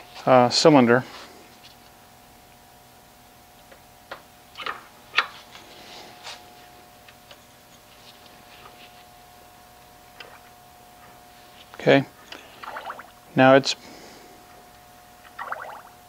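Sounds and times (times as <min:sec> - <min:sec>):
faint steady hum: 0:00.0 - 0:16.0.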